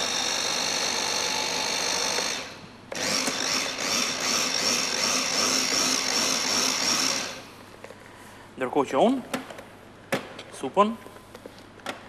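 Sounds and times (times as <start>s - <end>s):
electric blender motor whine: 0.0s - 7.5s.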